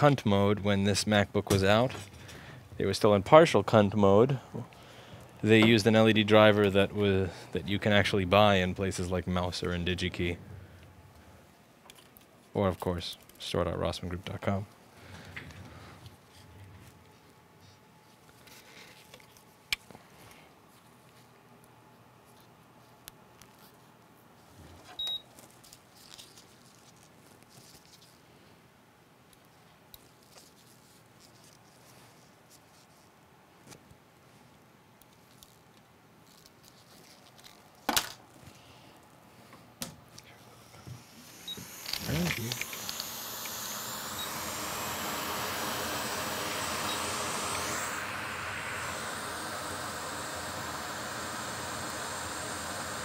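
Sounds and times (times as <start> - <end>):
fume extractor hiss: 40.4 - 53.0.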